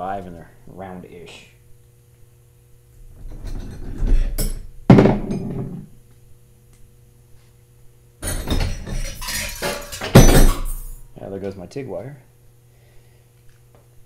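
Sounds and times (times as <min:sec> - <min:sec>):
metal tools clattering on workbench: 0:08.2 - 0:11.0.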